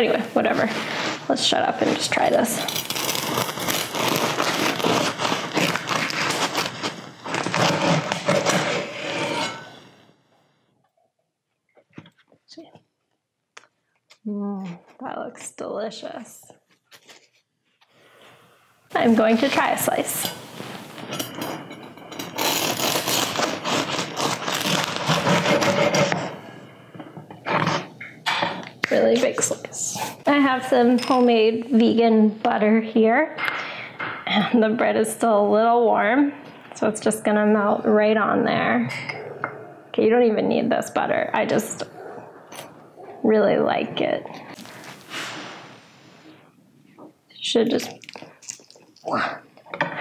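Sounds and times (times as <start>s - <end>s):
knife sawing through crusty bread: 2.7s - 9.7s, 22.4s - 26.3s.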